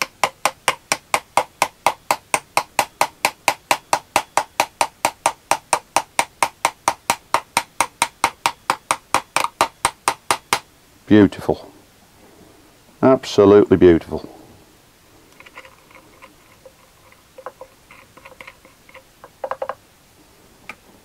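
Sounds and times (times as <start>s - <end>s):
rapid light metal tapping: 0.0s - 10.7s, 15.3s - 19.8s.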